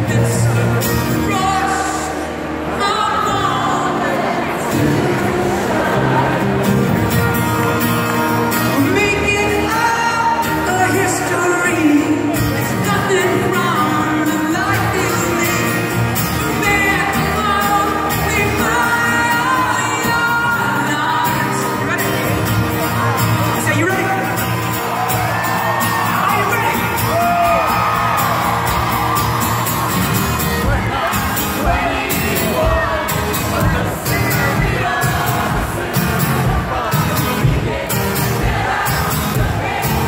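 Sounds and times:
strummed acoustic guitar: 0.0 - 40.0
audience shouting: 1.2 - 8.9, 22.8 - 40.0
person singing: 8.6 - 23.6.

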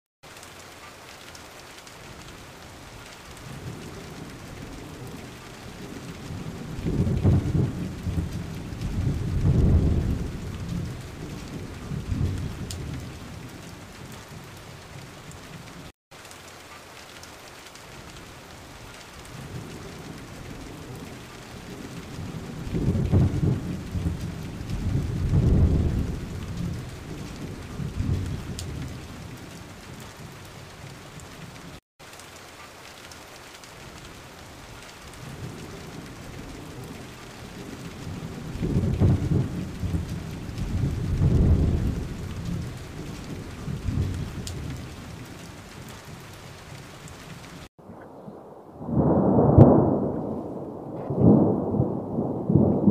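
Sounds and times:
rain hiss: 0.2 - 47.7
rolling thunder: 3.4 - 15.8, 19.3 - 30.4, 35.1 - 52.9.

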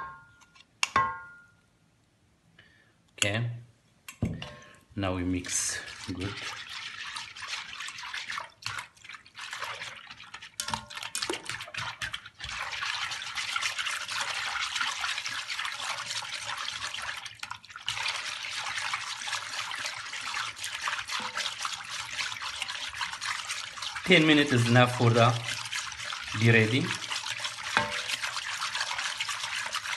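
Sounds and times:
whisk swishing liquid: 5.3 - 29.9.

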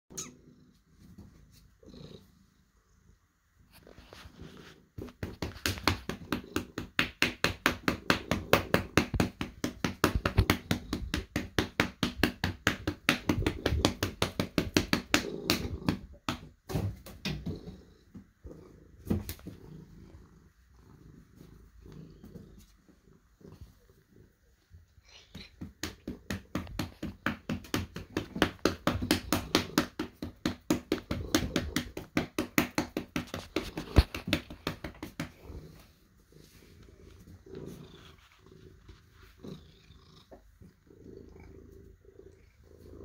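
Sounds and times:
cat purring: 0.2 - 16.3, 17.2 - 43.0
hand patting a cat: 25.6 - 35.7.

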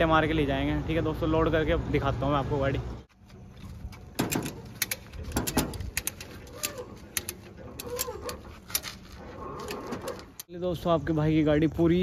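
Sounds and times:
sharp clicks and knocks: 3.2 - 10.5
faint cooing calls: 6.4 - 8.6.

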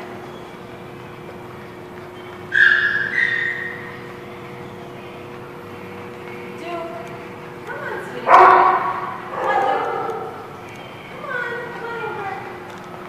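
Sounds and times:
steady hum: 0.0 - 13.0
dog whining: 2.5 - 4.0, 8.3 - 10.5.

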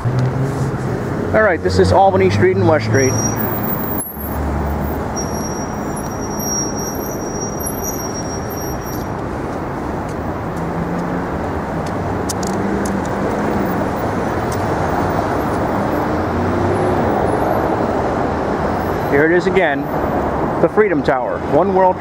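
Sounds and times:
road traffic: 0.0 - 22.0.

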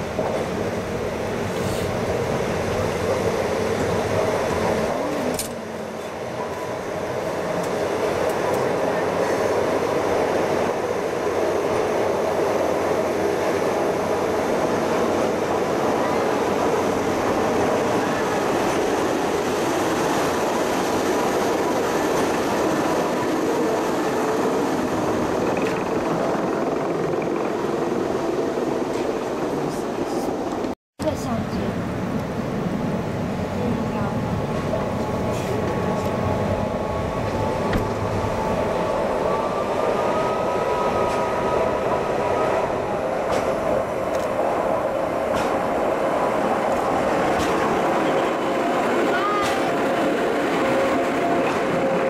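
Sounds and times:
cogwheel railcar drone: 0.0 - 52.0.

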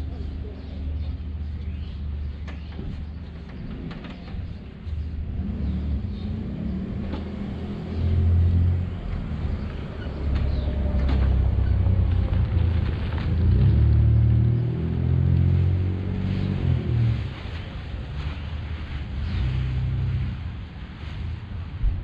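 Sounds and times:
vehicle engine rumble: 0.0 - 22.0.

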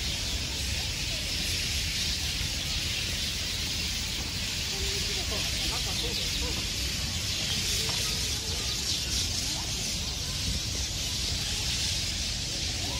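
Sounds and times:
flock of birds chattering: 0.0 - 12.9.

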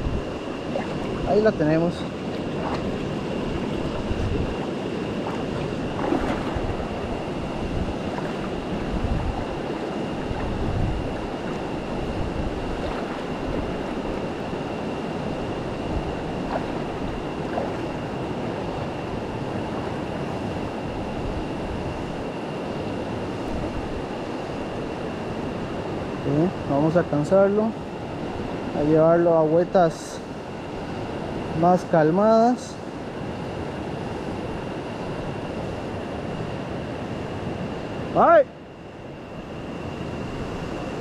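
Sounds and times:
wind buffeting microphone: 0.0 - 27.2.

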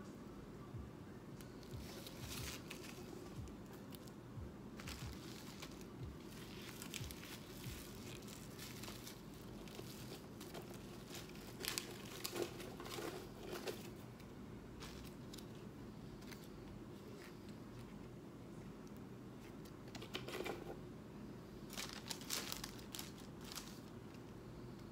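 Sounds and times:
plastic wrapping crinkling: 1.6 - 4.2, 4.8 - 14.0, 14.8 - 16.5, 21.7 - 24.3.

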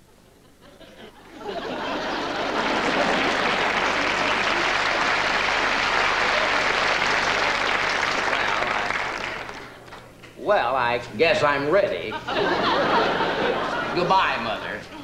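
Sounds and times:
audience applauding: 1.7 - 10.0.

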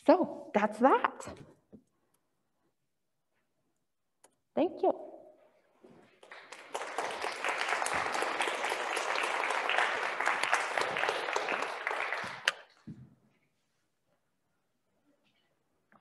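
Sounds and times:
audience applauding: 6.1 - 12.8.

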